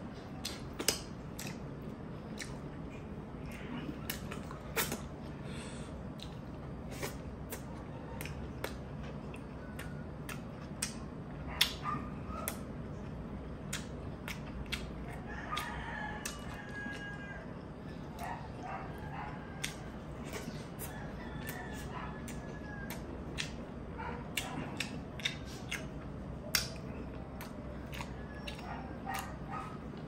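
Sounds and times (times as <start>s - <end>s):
mouth clicks and smacks chewing: 0.2s - 5.3s, 6.0s - 17.2s, 18.0s - 30.0s
rooster crowing: 15.1s - 23.6s.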